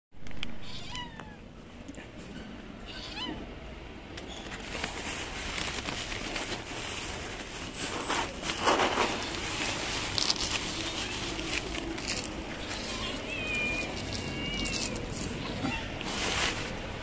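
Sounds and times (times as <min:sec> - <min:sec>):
cat meowing: 0:00.6 - 0:01.4, 0:02.8 - 0:03.5, 0:12.6 - 0:16.2
rustling and scuffing: 0:04.5 - 0:17.0.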